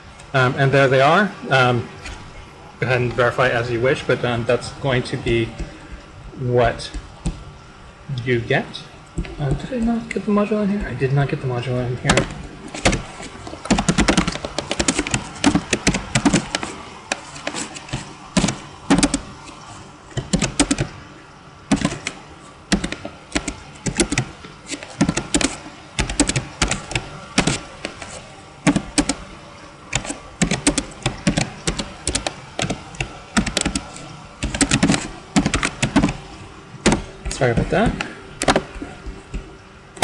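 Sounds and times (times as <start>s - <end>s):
computer keyboard typing: 12.1s - 19.3s, 20.2s - 21.0s, 21.7s - 29.2s, 29.9s - 36.2s.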